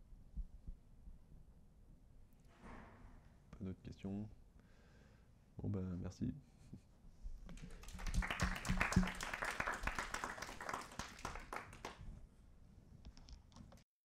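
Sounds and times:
audience applauding: 0:07.5 - 0:12.0.

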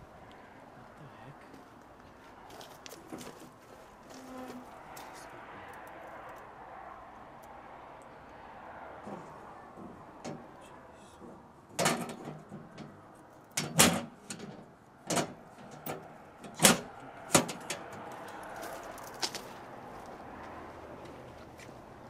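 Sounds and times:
breaker panel metal clicks and knocks: 0:09.7 - 0:10.6, 0:11.2 - 0:18.1.

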